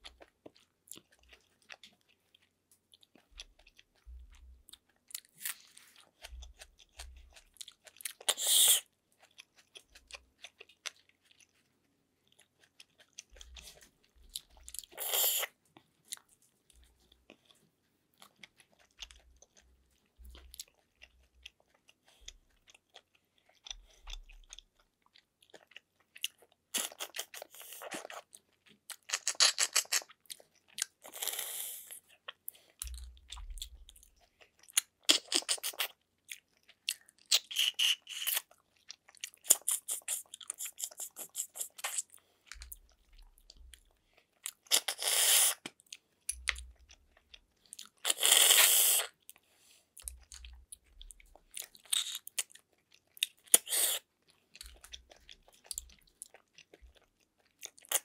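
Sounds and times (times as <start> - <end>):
wet chewing: 0.0 - 58.0
loud slurps: 44.8 - 45.6, 48.1 - 49.1.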